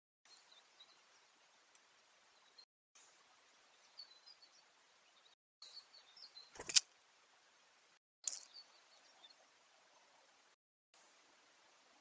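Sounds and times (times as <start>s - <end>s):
faint steady hiss: 0.3s - 12.0s
bird chirps: 3.7s - 6.8s, 8.2s - 9.5s.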